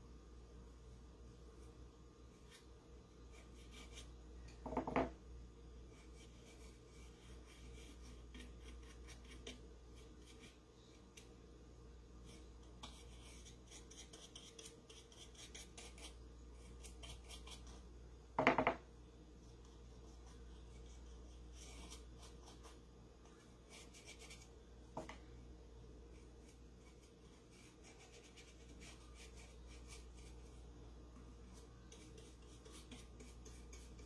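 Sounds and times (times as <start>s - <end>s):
paintbrush scratching on wood: 5.9s - 10.6s, 26.1s - 30.6s, 31.5s - 34.0s.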